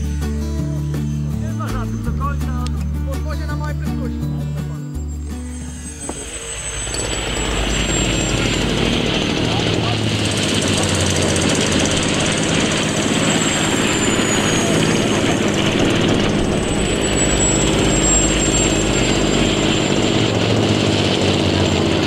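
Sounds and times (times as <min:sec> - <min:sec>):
high wavering whine: 0:00.0 - 0:22.0
model aircraft engine droning: 0:04.7 - 0:22.0.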